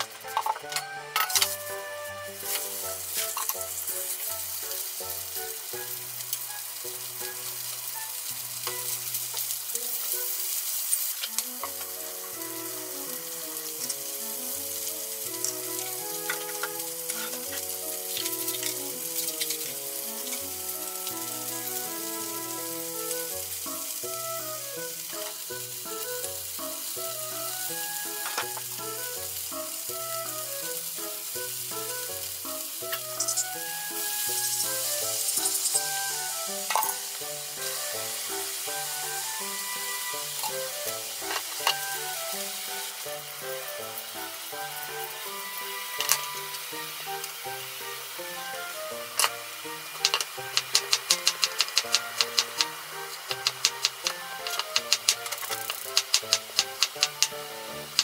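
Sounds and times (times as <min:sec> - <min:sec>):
background music: 0:00.0 - 0:58.0
fish sizzling in frying pan: 0:00.0 - 0:58.0
chopsticks clicking: 0:15.4 - 0:19.7, 0:32.9 - 0:33.6, 0:50.0 - 0:58.0.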